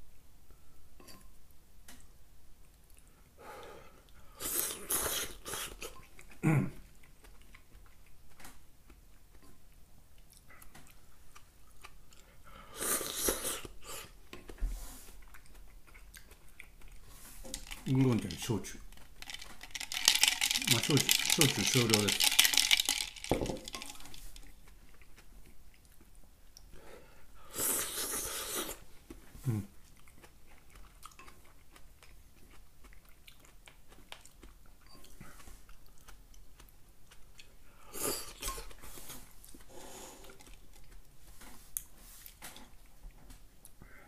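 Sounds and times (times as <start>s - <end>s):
person chewing: 2.6s - 43.9s
noodle slurping: 4.3s - 6.0s, 27.5s - 28.8s
person grunting: 6.4s - 6.8s.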